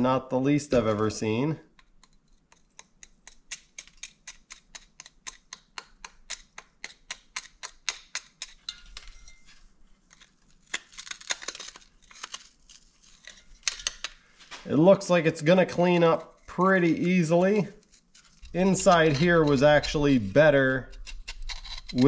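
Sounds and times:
screwdriver scraping metal: 15.6s - 22.0s.

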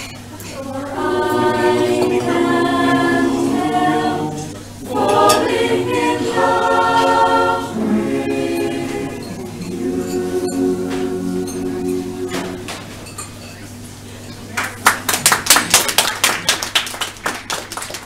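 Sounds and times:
choir singing a cappella: 0.4s - 13.1s.

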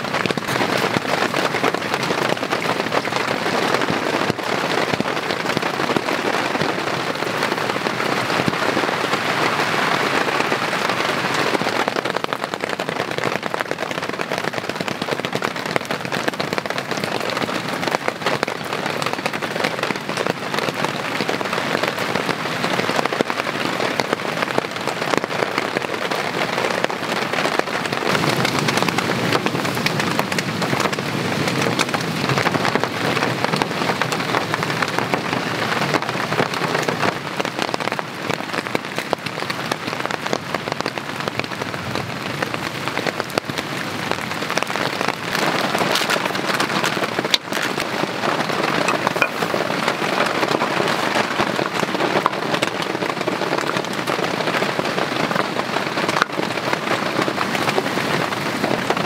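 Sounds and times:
heavy rain falling: 0.0s - 59.0s.

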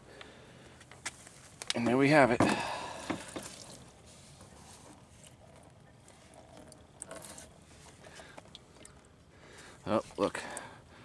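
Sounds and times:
plastic bottle handling knocks: 2.4s - 3.6s
faint liquid trickle: 2.6s - 11.0s.

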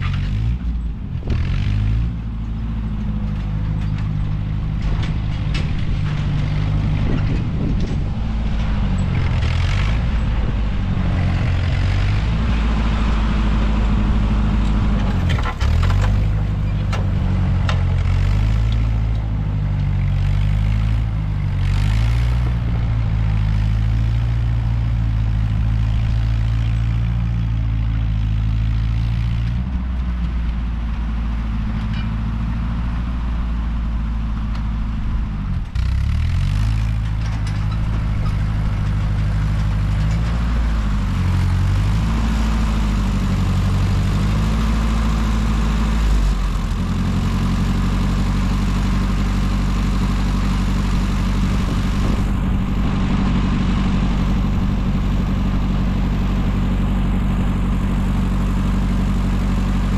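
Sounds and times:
tractor engine running: 0.0s - 59.9s.

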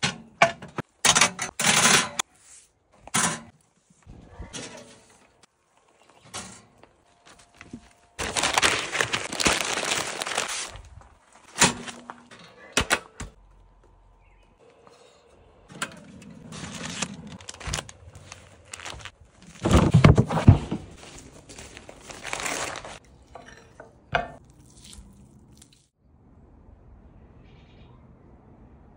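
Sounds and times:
paper crinkling and rustling: 6.8s - 12.2s, 16.4s - 23.0s.

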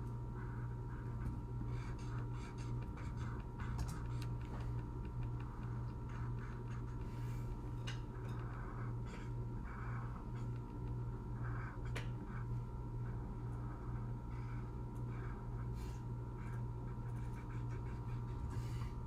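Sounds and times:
steady low hum: 0.0s - 19.0s
marker scratching on paper: 1.7s - 4.7s.

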